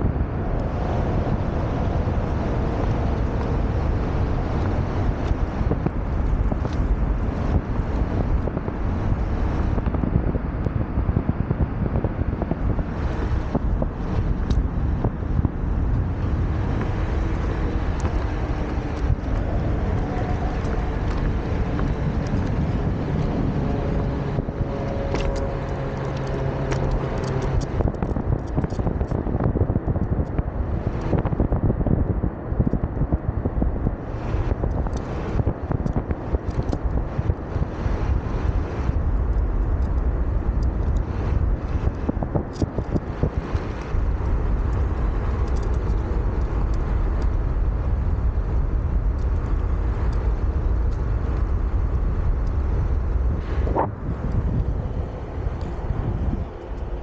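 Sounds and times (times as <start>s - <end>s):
wind buffeting microphone: 0.0s - 57.0s
wheel rolling on pavement: 0.1s - 57.0s
small ticks from road surface: 16.2s - 29.2s, 34.3s - 53.2s.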